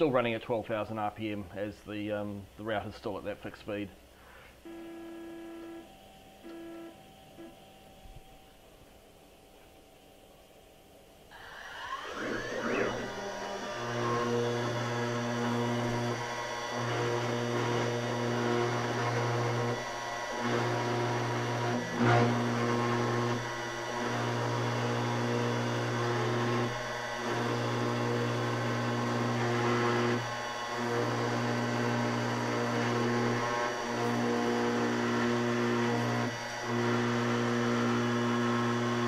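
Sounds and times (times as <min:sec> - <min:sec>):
router cutting metal: 0:11.3 - 0:39.0.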